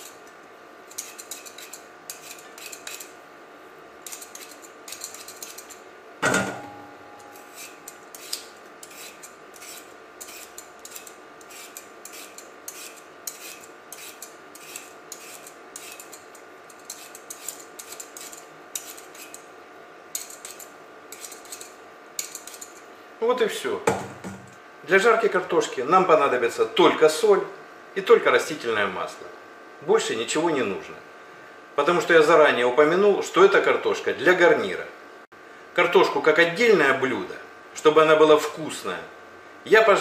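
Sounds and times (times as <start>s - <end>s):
vegetable peeler scraping potato: 0.0s - 0.3s, 0.9s - 3.2s, 4.0s - 5.8s, 7.3s - 19.5s, 20.1s - 22.8s.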